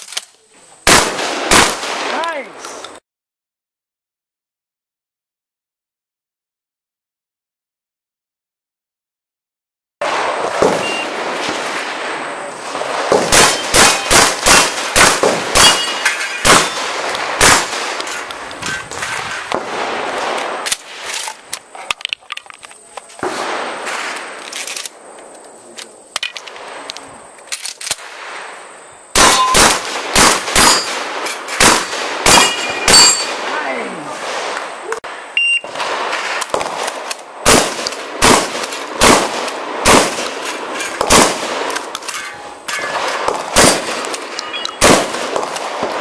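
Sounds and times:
shotgun loading clicks: 0:00.0 - 0:00.4, 0:20.3 - 0:23.1, 0:24.4 - 0:28.0
shotgun shots: 0:00.8 - 0:02.4, 0:10.0 - 0:21.2, 0:23.2 - 0:24.4, 0:29.1 - 0:46.0
steel plates clanging: 0:15.6 - 0:16.8, 0:32.3 - 0:33.4, 0:42.0 - 0:43.1.

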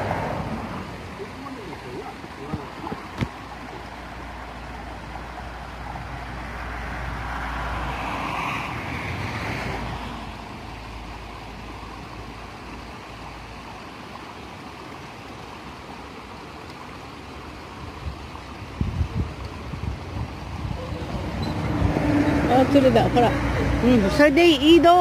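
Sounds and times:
water running into a pond: 0:00.0 - 0:25.0
wind rumbling on microphone: 0:17.8 - 0:22.7.

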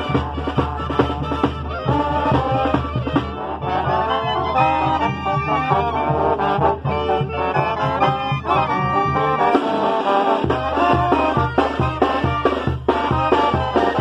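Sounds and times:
brass band playing: 0:00.0 - 0:14.0.

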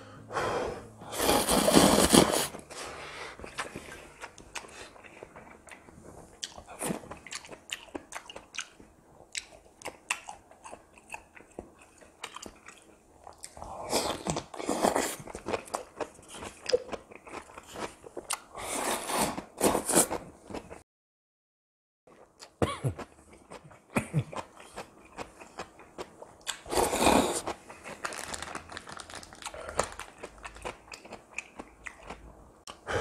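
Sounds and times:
slurping noodles: 0:01.1 - 0:05.4, 0:18.5 - 0:20.2, 0:26.6 - 0:27.6
crisp chewing crunches: 0:24.4 - 0:32.2.

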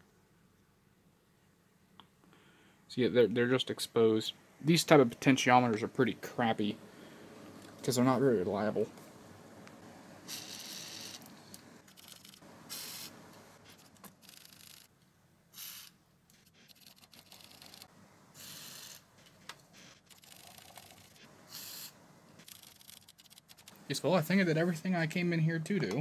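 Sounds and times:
aerosol spray hissing: 0:12.7 - 0:13.2, 0:15.5 - 0:16.0, 0:18.4 - 0:19.0, 0:21.5 - 0:22.0.

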